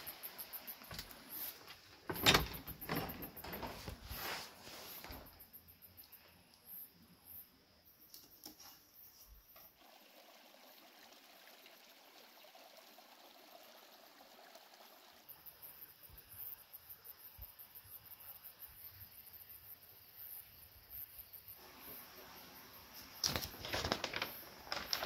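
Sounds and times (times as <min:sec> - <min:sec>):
insects chirring: 0:00.0 - 0:09.8, 0:15.0 - 0:25.0
stream trickling over stones: 0:09.6 - 0:16.3.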